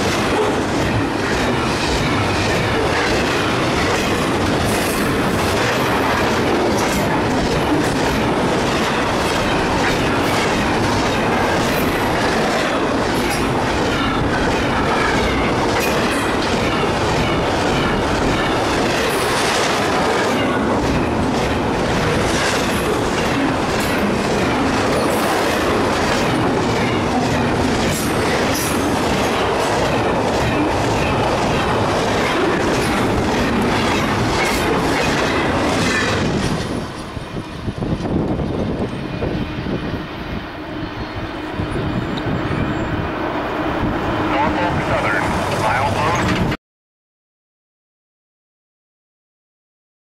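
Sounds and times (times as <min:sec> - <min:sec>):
wheels clicking over rail joints: 0:00.0 - 0:37.1
train wheels rushing on rail: 0:00.0 - 0:46.6.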